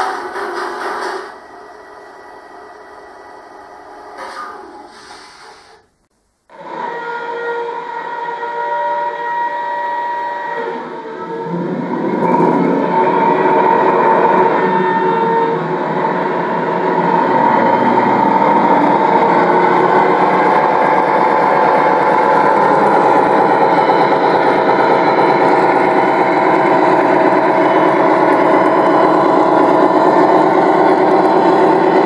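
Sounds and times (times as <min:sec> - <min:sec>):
model locomotive diesel engine sound: 0:00.0 - 0:32.0.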